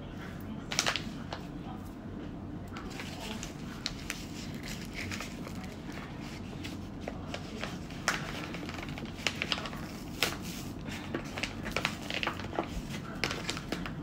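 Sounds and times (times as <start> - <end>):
low steady hum: 0.0 - 14.0
paper bag rustling: 2.8 - 14.0.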